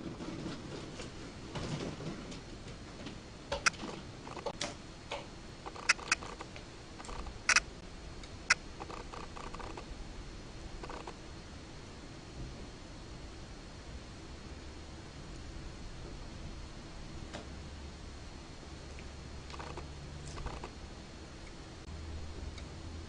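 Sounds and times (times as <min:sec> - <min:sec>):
sharp clicks: 0:05.6 - 0:09.8, 0:10.8 - 0:11.2, 0:19.5 - 0:20.7.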